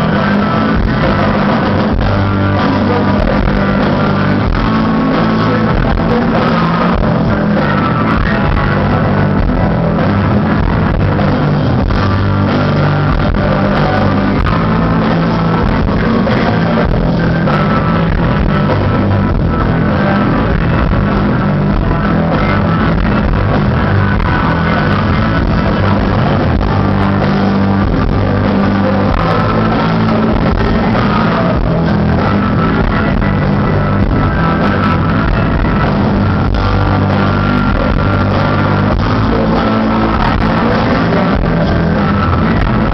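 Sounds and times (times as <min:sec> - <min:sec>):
rock band playing live: 0:00.0 - 0:42.9.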